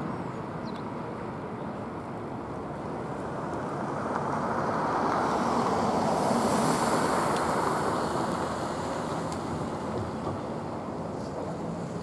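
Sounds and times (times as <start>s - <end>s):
passing vehicle rushing: 3.0s - 12.0s.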